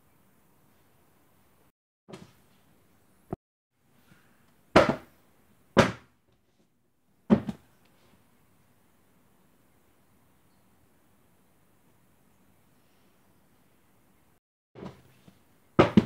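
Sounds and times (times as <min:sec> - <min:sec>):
books thumping onto a table: 0:02.1 - 0:02.4, 0:04.8 - 0:05.1, 0:07.3 - 0:07.6, 0:14.8 - 0:15.1, 0:15.8 - 0:16.0.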